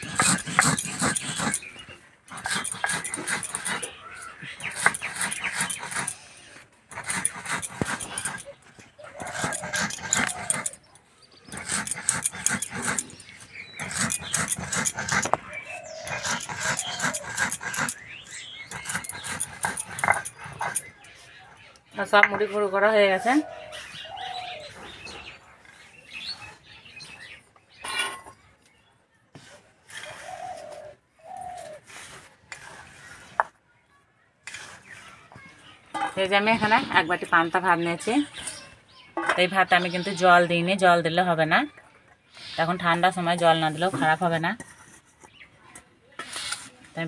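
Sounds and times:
stone muller scraping on stone slab: 0:00.0 - 0:08.5, 0:09.2 - 0:10.8, 0:11.4 - 0:21.4, 0:46.2 - 0:46.8
small birds chirping: 0:00.0 - 0:46.7
dove cooing: 0:08.1 - 0:10.8, 0:30.0 - 0:31.8
short scraping rustle: 0:46.2 - 0:46.9.

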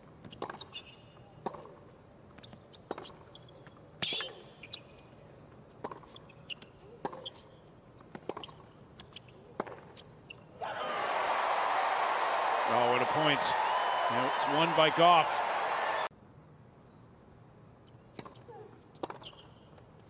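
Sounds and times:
tennis ball bouncing: 0:01.4 - 0:01.8, 0:05.7 - 0:10.0, 0:18.1 - 0:19.4
racket hitting tennis ball: 0:09.6 - 0:09.9
crowd applauding: 0:10.8 - 0:16.1.

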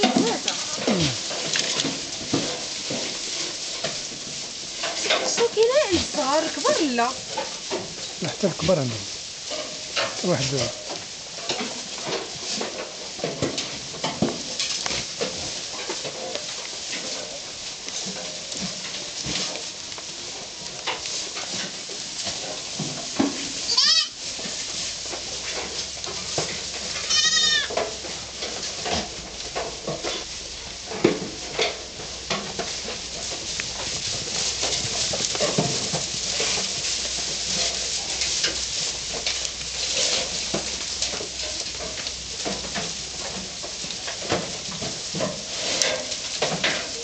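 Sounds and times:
goats bleating: 0:00.0 - 0:01.3, 0:23.7 - 0:24.2, 0:27.0 - 0:27.7
rustling and knocks of straw: 0:00.0 - 0:47.0.

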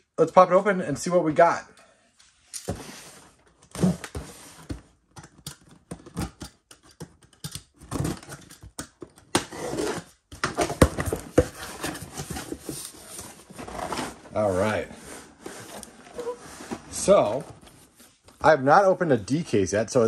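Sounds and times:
cardboard flaps scraping open: 0:11.1 - 0:18.2.

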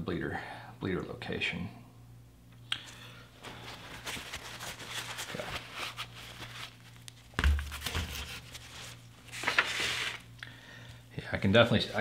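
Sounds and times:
crinkling foil handling noise: 0:03.4 - 0:10.4
dull thud on workbench: 0:07.4 - 0:08.1.

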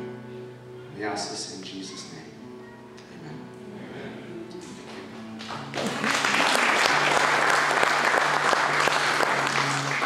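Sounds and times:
acoustic guitar playing: 0:00.0 - 0:10.0
congregation applauding: 0:04.9 - 0:10.0.

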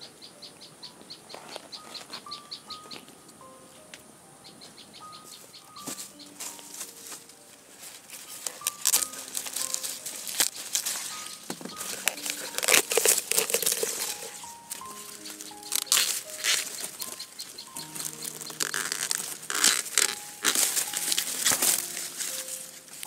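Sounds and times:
soft background music: 0:00.0 - 0:23.0
dry corn leaves rustling: 0:05.3 - 0:23.0.

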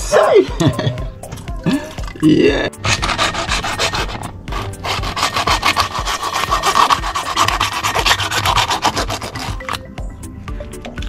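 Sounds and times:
hacksaw cutting shell: 0:02.8 - 0:09.9.

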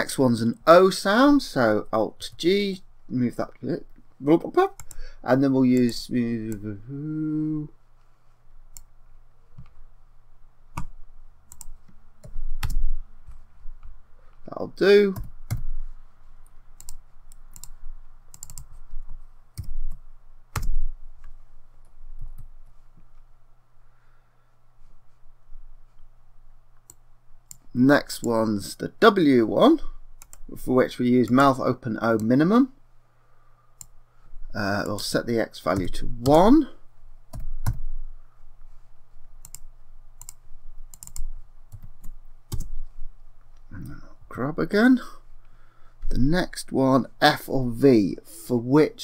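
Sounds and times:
low steady hum: 0:00.0 - 0:49.0
keyboard and mouse clicking: 0:04.8 - 0:05.0, 0:10.7 - 0:13.4, 0:16.8 - 0:21.3, 0:30.2 - 0:30.5, 0:37.3 - 0:37.8, 0:39.4 - 0:42.8.

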